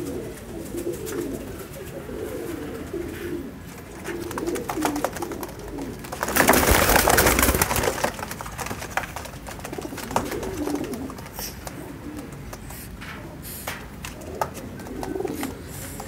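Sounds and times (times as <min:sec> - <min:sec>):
pigeons cooing: 0:00.0 - 0:16.0
rustling and clicking: 0:03.7 - 0:16.0.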